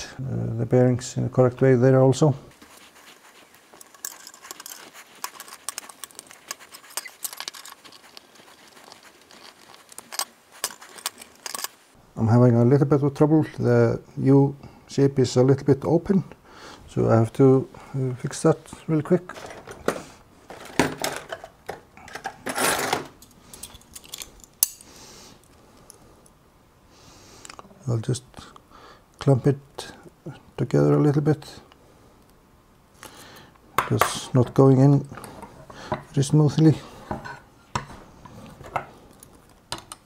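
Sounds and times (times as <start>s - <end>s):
metal tools clinking: 3.7s - 11.8s, 20.5s - 24.9s
small metal parts clicking: 3.8s - 11.8s, 22.1s - 25.9s.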